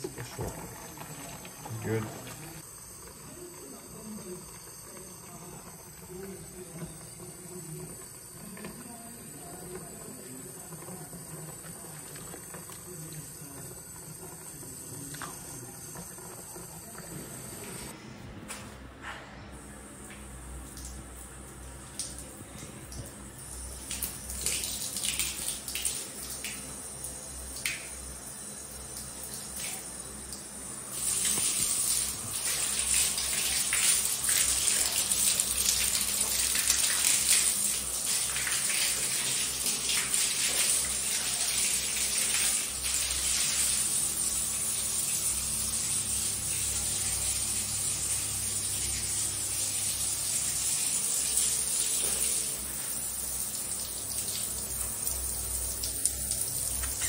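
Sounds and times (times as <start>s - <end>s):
shower spraying onto tiled floor: 19.9s - 57.0s.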